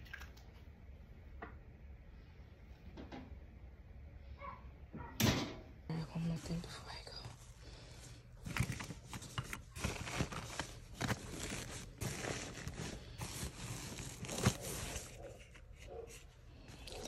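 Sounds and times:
nylon fabric rustling: 8.4 - 15.8.

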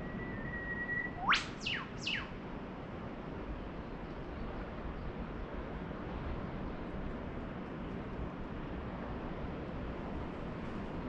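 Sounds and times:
bird whistling call: 0.0 - 2.3.

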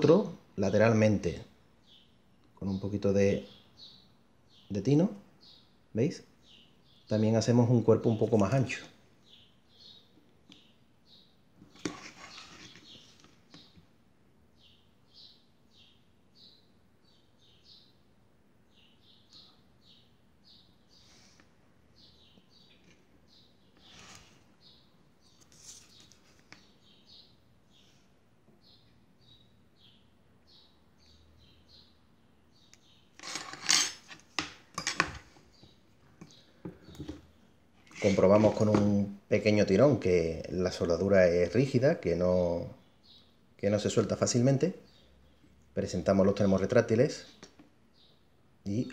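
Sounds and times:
small bird chirping: 1.2 - 5.8, 6.4 - 7.4, 8.0 - 13.8, 14.5 - 18.1, 18.7 - 39.2, 41.8 - 48.9
rustling handling noise: 11.6 - 13.6, 25.3 - 26.7.

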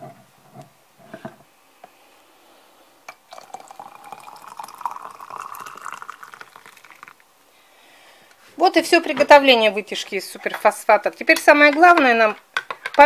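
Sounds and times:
water pouring into glass jar: 3.2 - 7.2.

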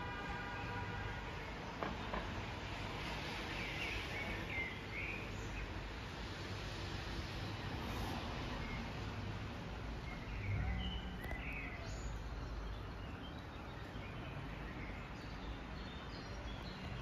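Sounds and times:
low traffic rumble: 0.0 - 17.0
wind: 0.0 - 17.0
rain hiss: 2.0 - 10.1.

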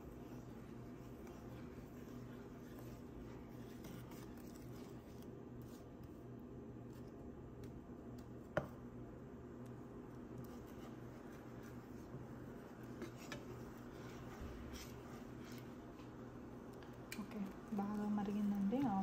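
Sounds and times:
plastic spatula scraping a pan: 0.0 - 5.3, 12.8 - 16.0
steady low hum: 0.0 - 19.0.

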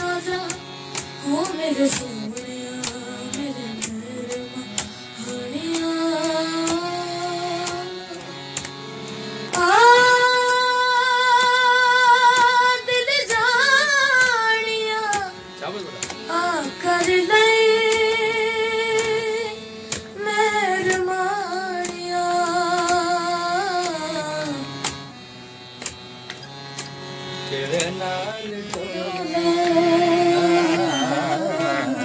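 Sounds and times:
sustained instrumental accompaniment: 0.0 - 32.0
boy singing: 9.6 - 15.4, 28.7 - 32.0.

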